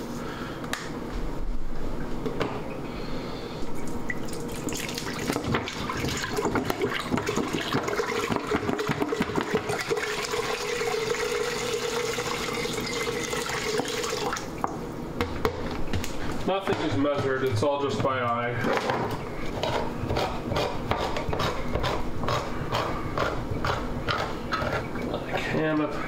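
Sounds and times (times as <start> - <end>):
water pouring into metal pot: 9.8 - 14.4.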